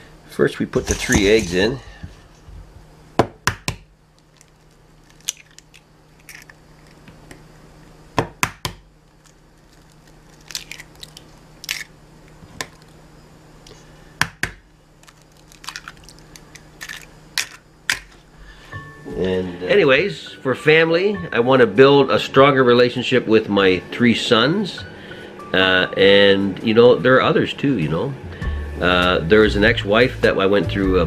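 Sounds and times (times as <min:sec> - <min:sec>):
faint low hum: 0:00.0 - 0:31.0
eggs cracking on bowl rim: 0:04.2 - 0:07.0, 0:09.2 - 0:11.9, 0:15.0 - 0:18.1.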